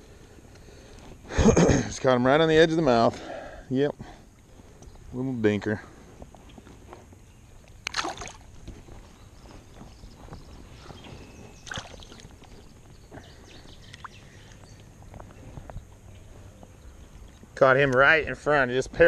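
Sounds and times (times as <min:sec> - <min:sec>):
water splashes: 0:07.8 - 0:08.5, 0:11.6 - 0:12.3
water sloshing around person wading: 0:07.8 - 0:08.8, 0:10.8 - 0:12.8.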